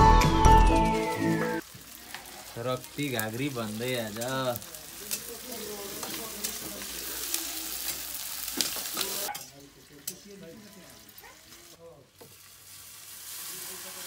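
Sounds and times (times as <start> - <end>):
onions sizzling in hot oil: 1.0 - 14.0.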